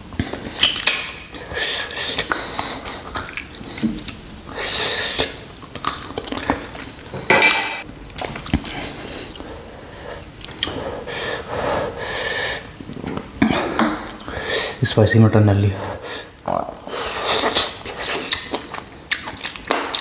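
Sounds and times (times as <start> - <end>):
chewing meat: 0.1 - 7.1, 16.4 - 20.0
wet mouth sounds: 0.2 - 6.9, 16.4 - 20.0.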